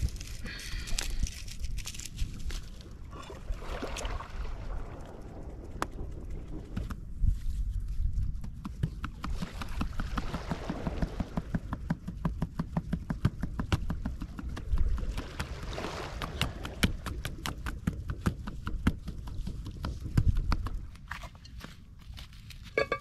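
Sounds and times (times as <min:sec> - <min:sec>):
low rumble: 0:04.2 - 0:08.1
ringing tone: 0:22.8 - 0:23.0.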